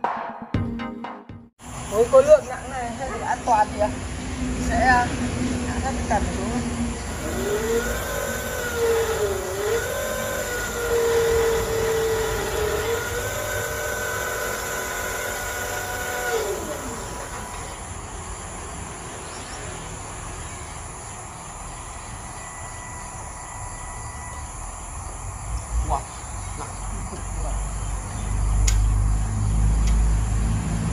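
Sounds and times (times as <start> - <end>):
insects chirping: 1.6 - 30.9
electric motor whining: 6.9 - 18.6, 20.2 - 30.8.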